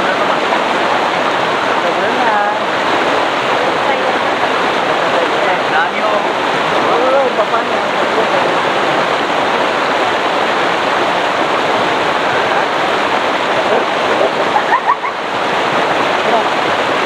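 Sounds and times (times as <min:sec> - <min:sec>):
fast-flowing river rushing: 0:00.0 - 0:17.0
swimmers splashing: 0:01.3 - 0:16.5.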